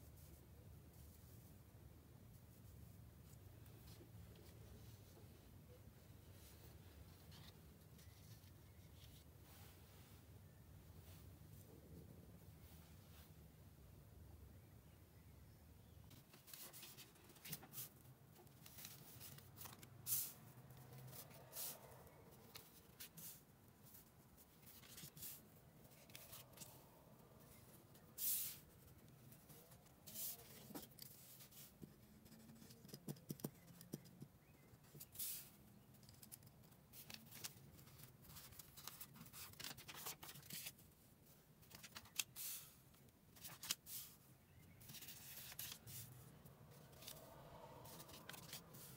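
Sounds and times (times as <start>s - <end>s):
paper rustling and scraping: 18.5s - 20.4s, 24.6s - 26.8s, 29.3s - 32.8s, 36.3s - 40.8s, 44.8s - 46.2s, 46.8s - 48.9s.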